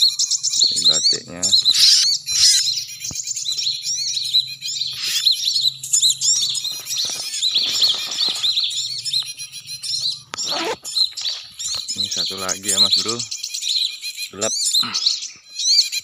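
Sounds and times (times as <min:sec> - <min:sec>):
small birds chirping: 0:00.0 - 0:16.0
rustling: 0:06.5 - 0:08.9.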